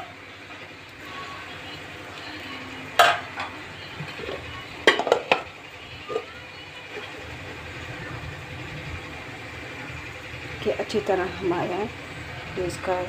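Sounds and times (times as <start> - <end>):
metal lid clanking on pan: 3.0 - 3.6, 4.8 - 5.5.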